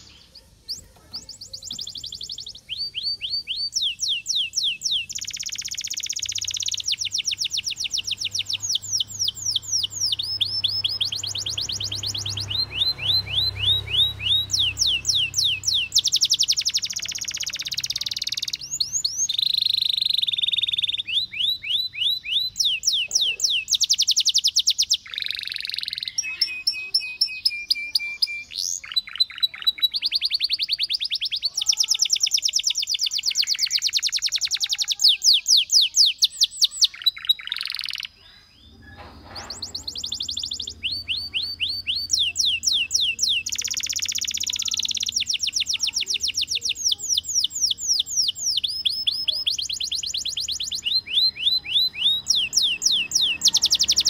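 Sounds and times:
canary singing trills: 0.0 - 54.0.

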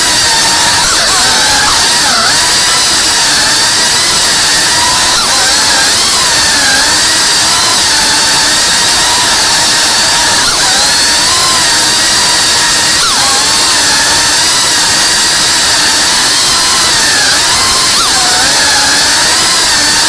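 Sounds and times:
drone motors and propellers whining: 0.0 - 20.0.

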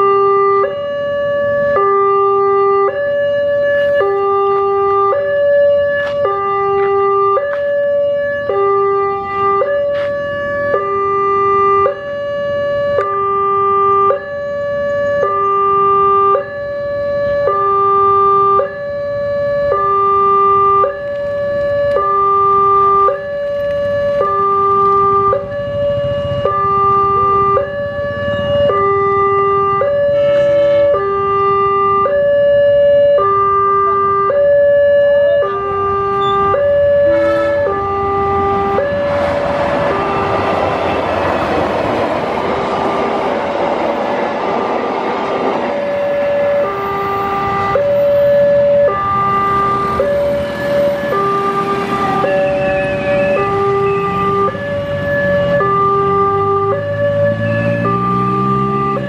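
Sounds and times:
two-tone crossing alarm: 0.0 - 44.2, 45.3 - 59.0
diesel locomotive rumble: 21.0 - 59.0.

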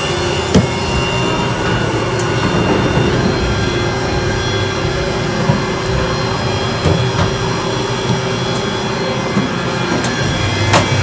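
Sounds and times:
machine humming with high whine: 0.0 - 11.0.

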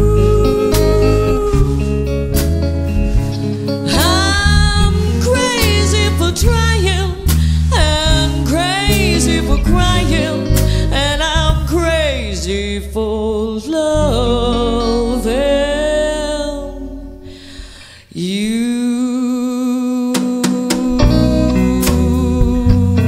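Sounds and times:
woman singing: 0.0 - 2.3, 3.8 - 23.0
live rock band playing: 0.0 - 11.8, 20.9 - 23.0.

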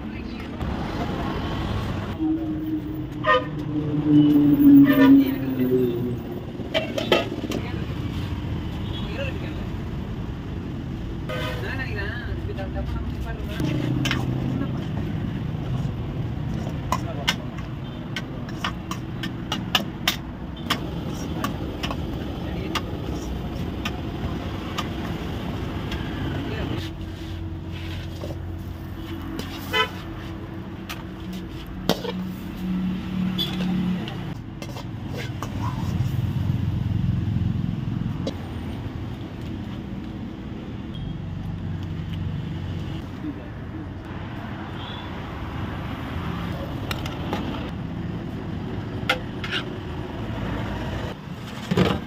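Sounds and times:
road traffic: 0.0 - 52.0
vehicle horn toot: 3.2 - 3.6.

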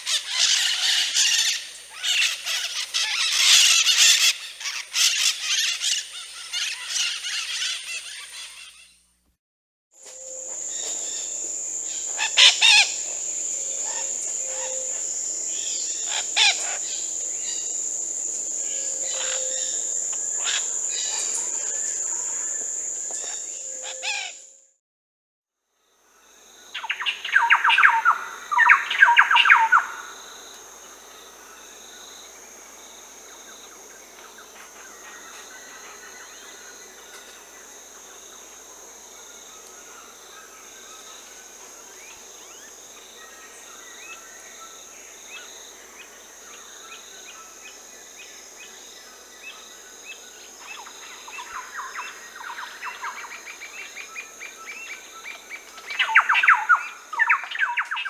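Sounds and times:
high insect drone: 10.0 - 24.4, 25.8 - 58.0
birds trilling: 10.1 - 24.4.

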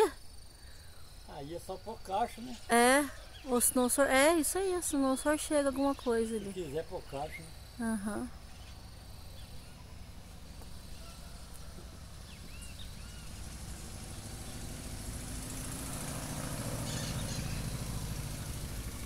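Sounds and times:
vehicle engine humming: 0.0 - 19.0
bird chirps: 0.5 - 13.4, 16.7 - 18.0.

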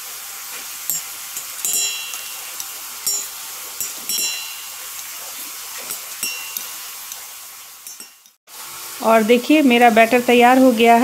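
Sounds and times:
background hiss: 0.0 - 10.9
spoon clinking on metal jar: 0.9 - 8.4.

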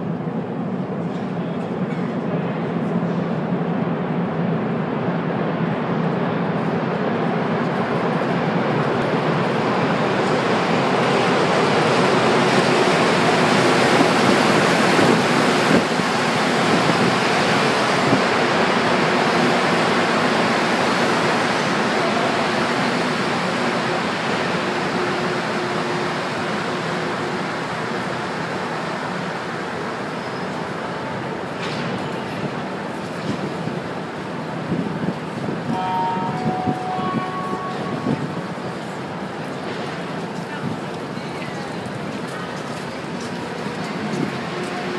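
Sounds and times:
metro train rushing into station: 0.0 - 44.9.

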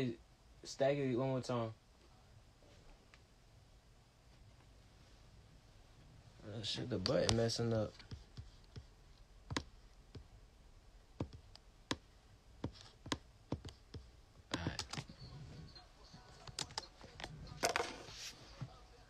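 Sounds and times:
keys and buttons clicking: 12.6 - 15.4, 16.1 - 17.6.

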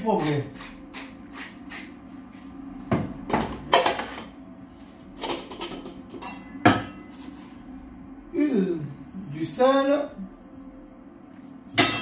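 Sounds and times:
pepper mill grinding: 0.2 - 1.9.

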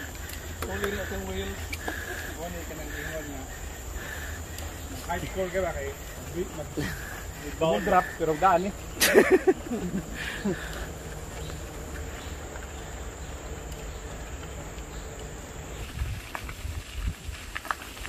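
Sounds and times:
wind rumble on microphone: 15.7 - 18.0.

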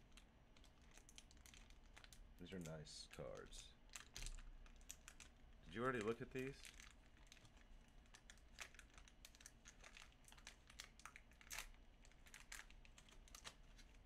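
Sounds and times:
cards and packaging crinkling: 0.0 - 14.0.

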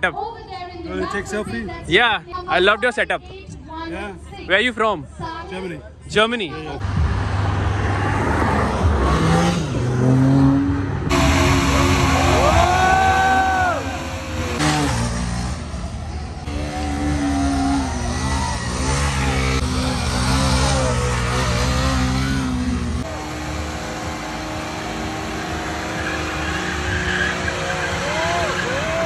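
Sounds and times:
motorcycle engines revving: 6.8 - 29.0.

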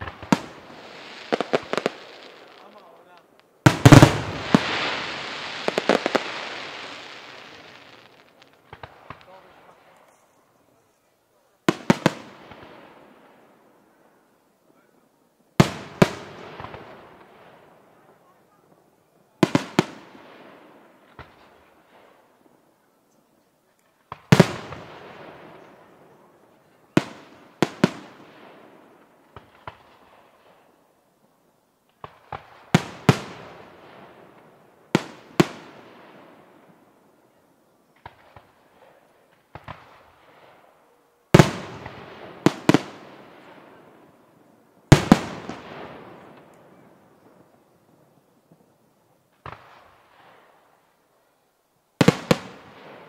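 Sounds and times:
firework shells bursting: 0.0 - 10.3
small firework pops: 0.0 - 10.4, 21.1 - 22.2, 23.2 - 25.8, 29.3 - 30.7, 31.8 - 33.5, 37.8 - 40.7, 44.9 - 47.6, 49.3 - 50.6.

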